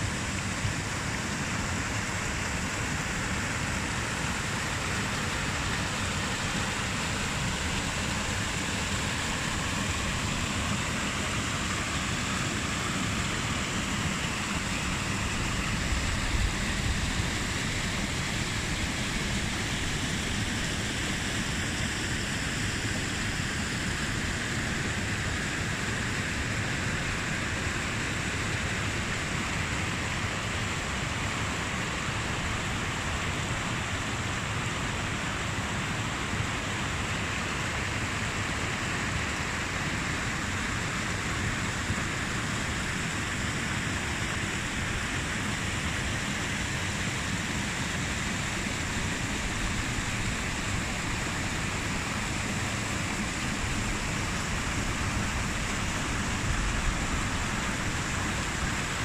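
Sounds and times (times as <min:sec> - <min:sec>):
stream rushing over rocks: 0:00.0 - 0:59.0.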